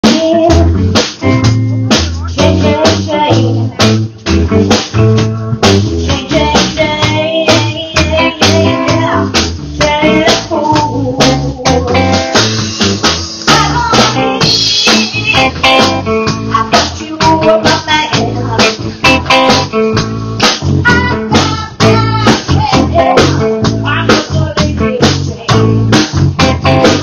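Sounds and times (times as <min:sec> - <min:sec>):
woman singing: 0:00.0 - 0:00.7, 0:02.3 - 0:04.0, 0:06.1 - 0:12.4, 0:13.4 - 0:14.6, 0:16.4 - 0:19.6, 0:20.9 - 0:27.0
drum kit beat: 0:00.0 - 0:27.0
electric bass: 0:00.0 - 0:27.0
electric guitar: 0:00.0 - 0:27.0.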